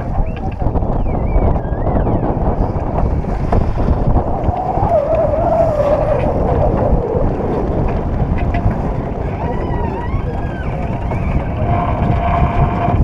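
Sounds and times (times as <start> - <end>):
wind buffeting microphone: 0.0 - 13.0
wavering tone: 4.2 - 8.6.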